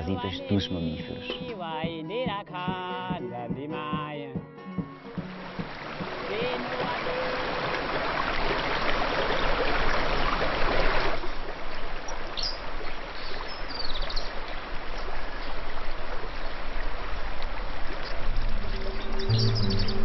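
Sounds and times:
stream water rushing: 4.9 - 20.0
high chirps: 18.4 - 20.0.

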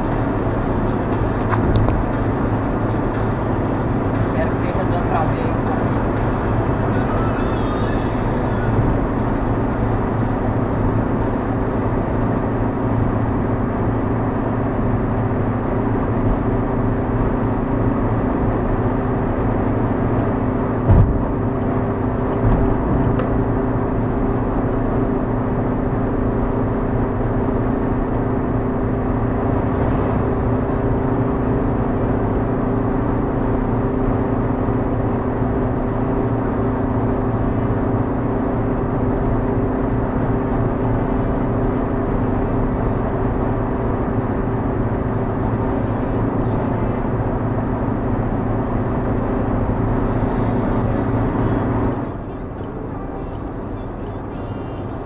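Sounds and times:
car engine drone: 0.0 - 55.0
tyre and road noise: 0.0 - 55.0
short thump: 20.9 - 21.2.

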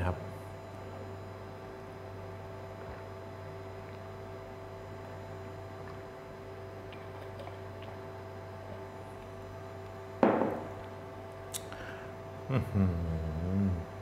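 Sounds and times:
steady background hum: 0.0 - 14.0
glass knocking on countertop: 10.2 - 10.7.

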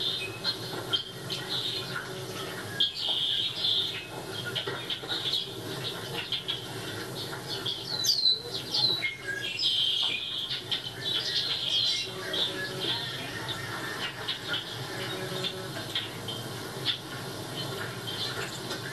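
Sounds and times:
small songbirds chirping: 0.0 - 13.6.

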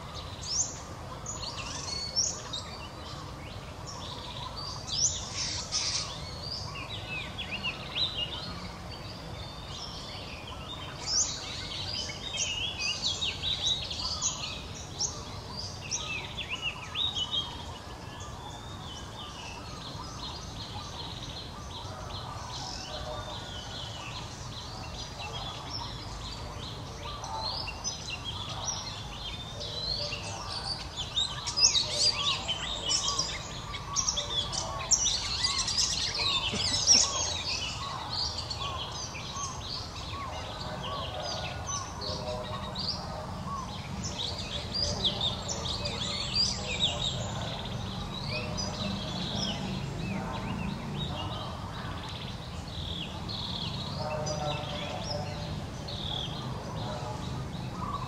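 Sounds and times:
birds chirping and twittering: 0.0 - 58.0.

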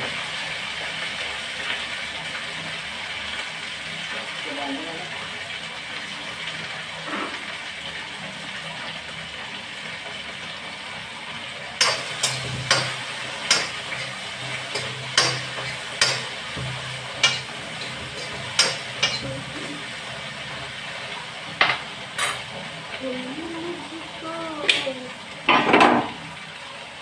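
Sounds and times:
frying sizzle: 0.0 - 27.0
spatula clacking on pan: 11.8 - 19.3
metal spatula stirring in pan: 11.8 - 19.5.

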